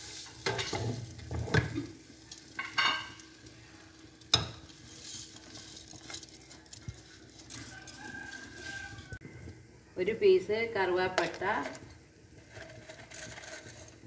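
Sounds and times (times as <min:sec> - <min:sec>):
rice sizzling in oil: 0:00.0 - 0:14.0
wooden spatula scraping pot: 0:04.3 - 0:09.1, 0:12.4 - 0:14.0.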